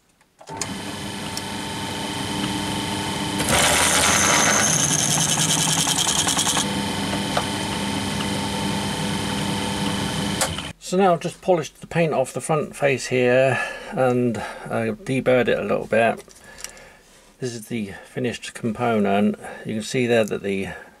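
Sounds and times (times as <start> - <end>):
drill motor humming: 0.5 - 10.7
drill bit chattering through metal: 3.4 - 6.7.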